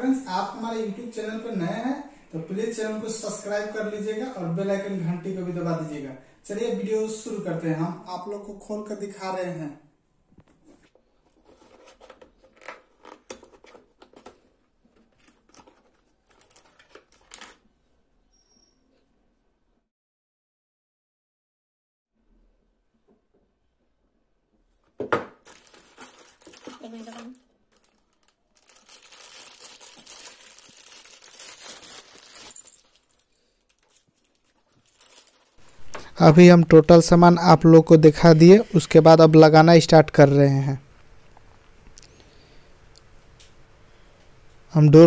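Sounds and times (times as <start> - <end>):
plastic bag crinkling: 11.2 - 17.6, 25.4 - 37.1.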